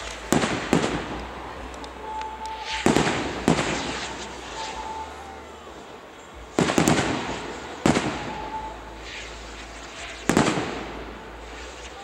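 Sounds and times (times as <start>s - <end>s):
fireworks bangs with rolling echo: 0.0s - 12.0s.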